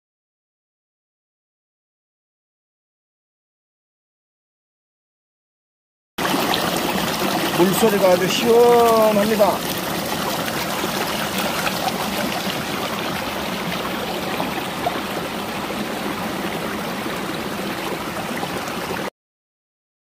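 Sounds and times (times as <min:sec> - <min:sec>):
stream flowing over rocks: 0:06.2 - 0:19.1.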